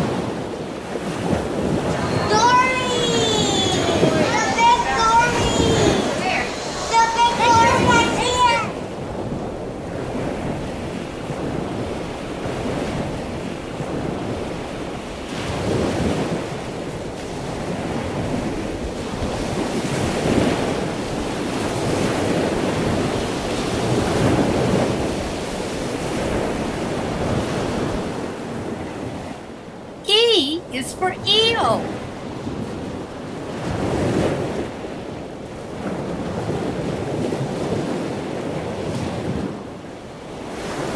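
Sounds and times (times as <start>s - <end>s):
steady rushing surf-like noise: 1.8s - 9.7s.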